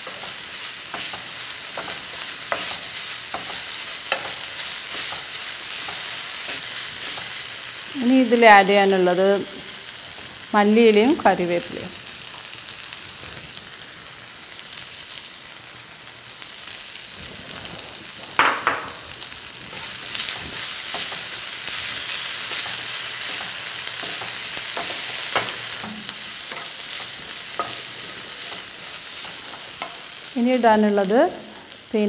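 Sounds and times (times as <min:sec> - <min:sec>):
spatula scraping and tapping pan: 0:00.0 - 0:07.4, 0:22.5 - 0:30.1
onions sizzling in oil: 0:00.0 - 0:32.0.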